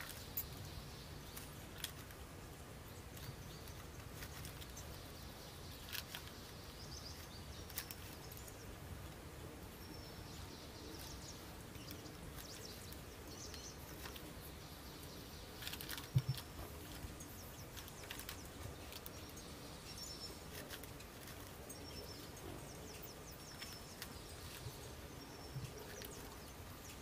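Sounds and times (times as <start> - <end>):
bird chirps: 9.6 - 27.0.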